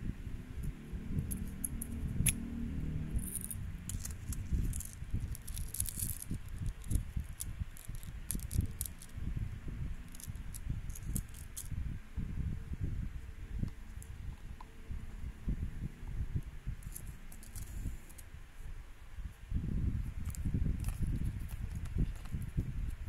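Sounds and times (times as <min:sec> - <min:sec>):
bead chain rattling: 0:03.1 - 0:09.2, 0:10.0 - 0:11.7, 0:16.8 - 0:18.2.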